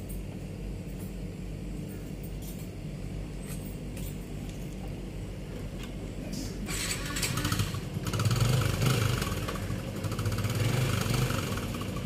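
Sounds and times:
motorcycle engine idling: 0:07.2 - 0:12.0.

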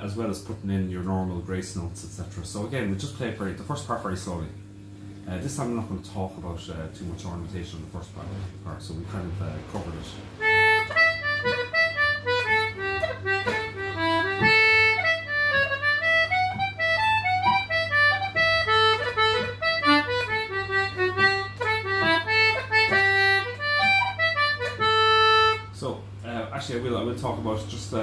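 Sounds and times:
concertina melody: 0:10.4 - 0:25.8.

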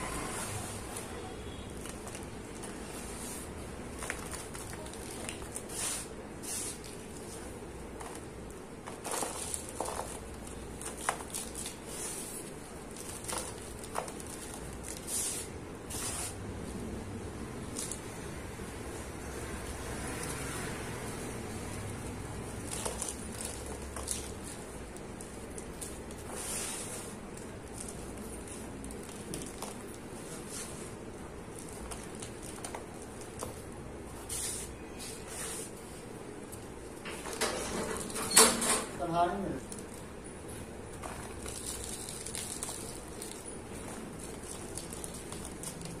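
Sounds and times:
crumbs falling onto powder: 0:00.9 - 0:16.2
gritty crunching and cracking: 0:01.7 - 0:06.0, 0:06.6 - 0:15.4, 0:21.7 - 0:30.7, 0:40.9 - 0:46.0
hand brushing across powder: 0:05.7 - 0:06.9, 0:26.3 - 0:27.1.

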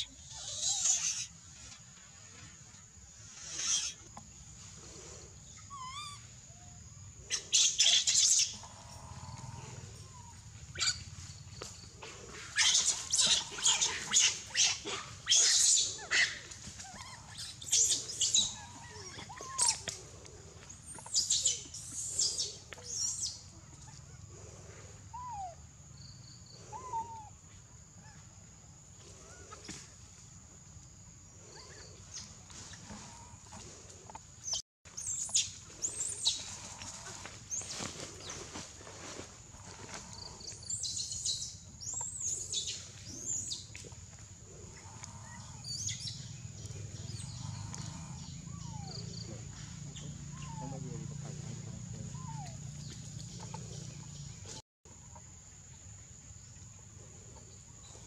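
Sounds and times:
leaves and branches rustling: 0:35.0 - 0:41.0.

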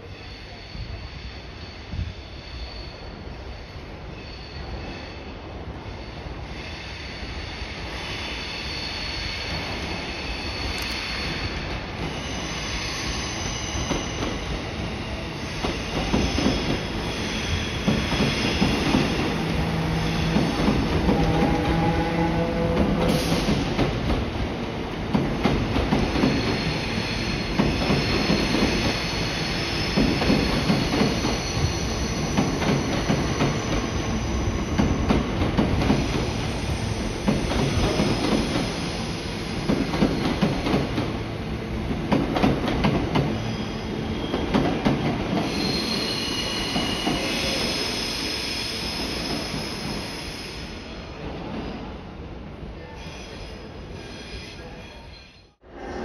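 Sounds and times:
train wheels squealing: 0:00.0 - 0:23.9, 0:25.6 - 0:41.4, 0:42.4 - 0:51.8, 0:52.8 - 0:56.0
train rumble: 0:13.8 - 0:43.4.

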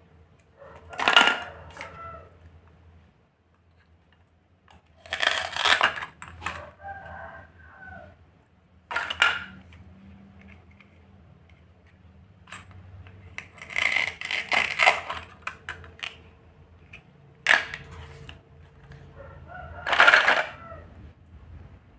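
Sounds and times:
plastic toys clattering on a board: 0:00.8 - 0:02.0, 0:04.0 - 0:06.6, 0:08.9 - 0:09.8, 0:16.9 - 0:19.0, 0:19.8 - 0:20.6
plastic toy pieces rattling in basket: 0:19.8 - 0:20.6.

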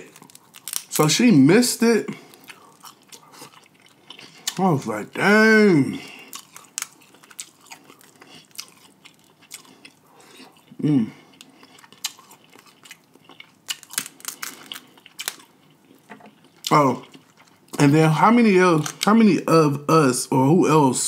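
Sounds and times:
crab shell cracking: 0:00.0 - 0:01.1, 0:06.4 - 0:09.6, 0:11.8 - 0:15.5
chewing and biting: 0:02.3 - 0:04.6, 0:06.1 - 0:17.8.

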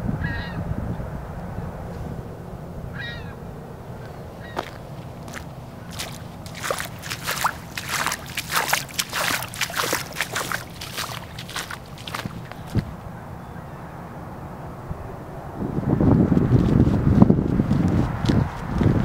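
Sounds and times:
crow cawing: 0:03.0 - 0:03.4, 0:04.4 - 0:04.8
footsteps splashing through water on gravel: 0:04.6 - 0:13.0.

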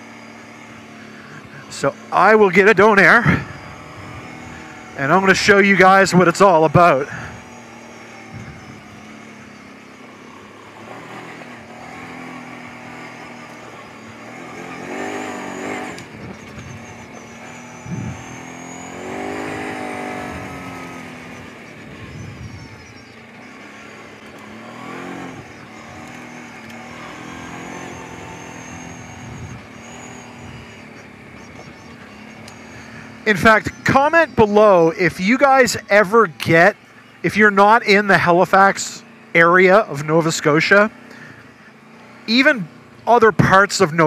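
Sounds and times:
atv engine revving: 0:00.0 - 0:44.0.

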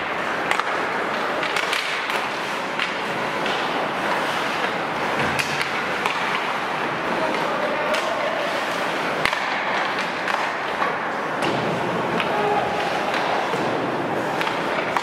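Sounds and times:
hockey sticks and puck clacking: 0:00.0 - 0:15.0
skate blades scraping ice: 0:00.0 - 0:15.0.

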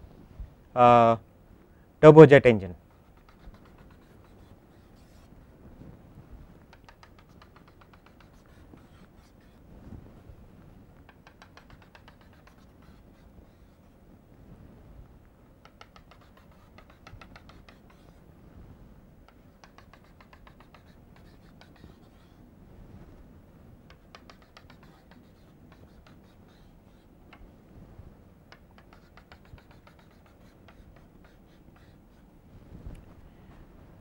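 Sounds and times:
chalk tapping on blackboard: 0:02.9 - 0:05.3, 0:06.7 - 0:09.6, 0:11.1 - 0:13.9, 0:15.6 - 0:18.2, 0:19.3 - 0:22.4, 0:23.8 - 0:27.5, 0:28.5 - 0:32.3.

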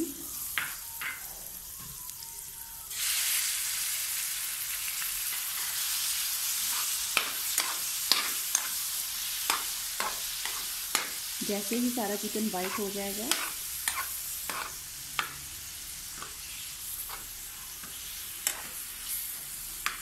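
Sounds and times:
chicken sizzling in butter: 0:00.0 - 0:20.0
metal spoon scraping a pan: 0:06.6 - 0:11.2, 0:12.2 - 0:15.4, 0:16.1 - 0:20.0.

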